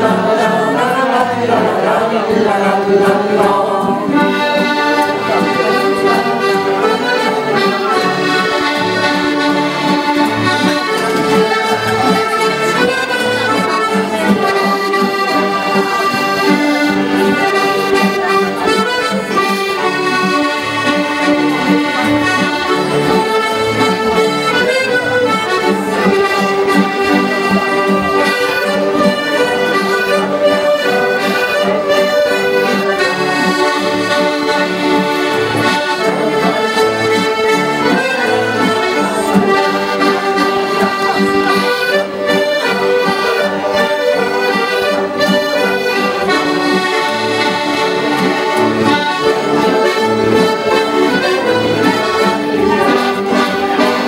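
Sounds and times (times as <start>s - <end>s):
accordions playing dance tune: 0.0s - 54.0s.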